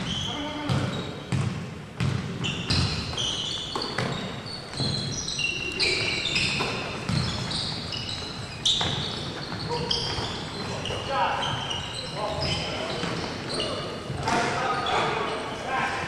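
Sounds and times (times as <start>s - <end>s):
shoes squeaking: 0.0s - 1.4s, 2.3s - 15.6s
basketball bouncing on wooden floor: 0.6s - 5.1s, 6.4s - 7.6s.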